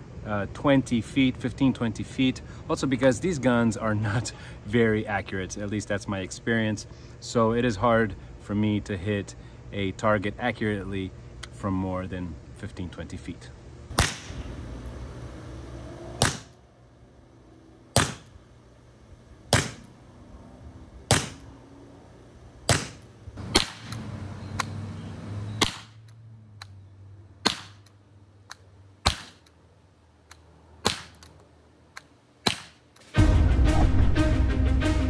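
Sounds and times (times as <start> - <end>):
dart launcher pops: 13.9 - 14.4, 16.2 - 16.6, 18.0 - 18.3, 19.5 - 19.9, 21.1 - 21.4, 22.7 - 24.0, 25.6 - 25.9, 27.4 - 27.8.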